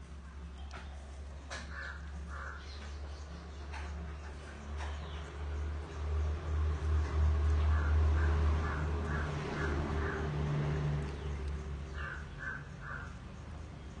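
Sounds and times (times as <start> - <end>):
bird calling: 0.3 - 4.0, 11.9 - 13.3.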